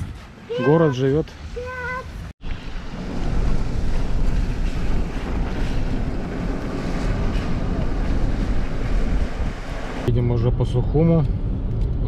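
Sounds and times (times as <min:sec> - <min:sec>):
vehicle driving rumble: 0:01.3 - 0:12.0
wind rushing over microphone: 0:01.4 - 0:12.0.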